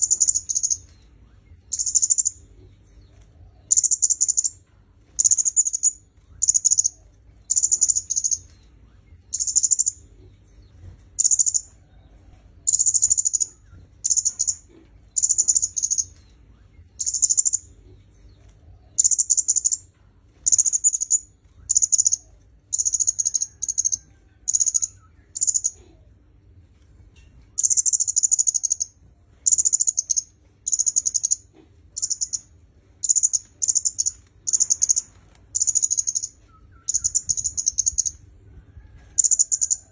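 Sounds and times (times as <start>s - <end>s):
songbird buzzy trilled calls: 0.0s - 0.9s, 1.6s - 2.4s, 3.7s - 4.6s, 5.2s - 8.5s, 9.3s - 10.0s, 11.2s - 11.7s, 12.7s - 16.2s, 16.9s - 17.7s, 19.0s - 25.8s, 27.6s - 38.2s.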